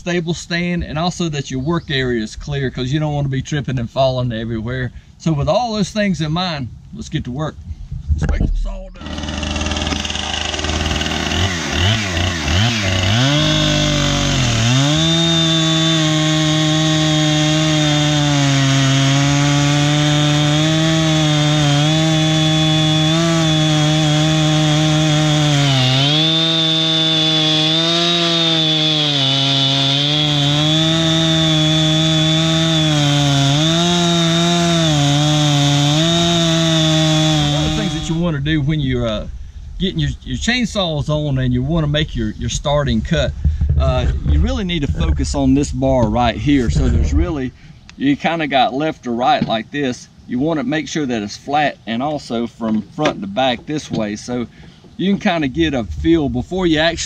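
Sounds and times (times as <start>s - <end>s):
chainsaw cutting through wood: 9.0s - 38.4s.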